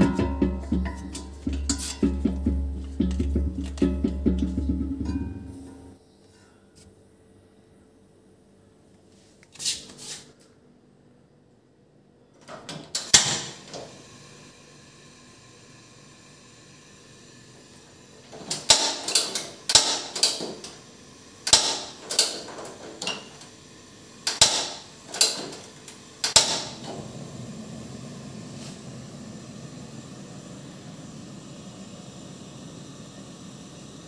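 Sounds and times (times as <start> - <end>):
gas flame hissing: 0.0 - 6.0, 12.7 - 34.0
gas stove ignition clicks: 12.7 - 13.9, 18.3 - 20.8, 21.4 - 23.5, 24.2 - 27.1.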